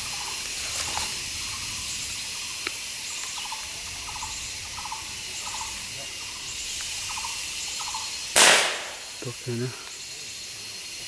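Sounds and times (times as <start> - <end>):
high-pitched insect drone: 0.0 - 11.0
bird chattering calls: 1.4 - 9.6
sharp snap: 8.4 - 9.1.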